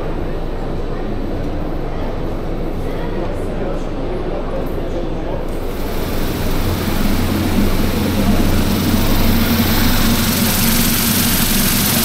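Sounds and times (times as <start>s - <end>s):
low mechanical hum: 0.0s - 12.0s
rushing noise: 5.6s - 12.0s.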